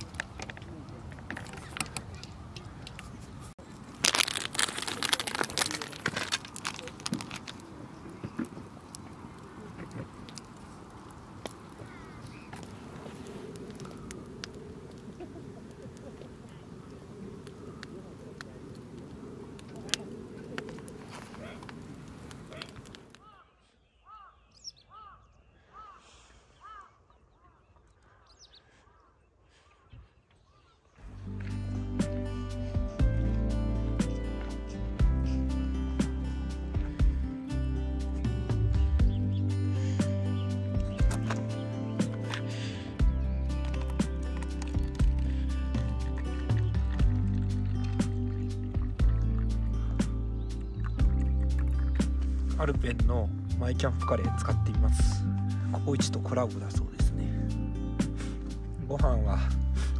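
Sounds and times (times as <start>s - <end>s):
campfire crackling and popping: 0.0s - 23.3s, 31.0s - 59.9s
bird calling: 7.6s - 31.1s
small bird chirping: 39.0s - 52.5s.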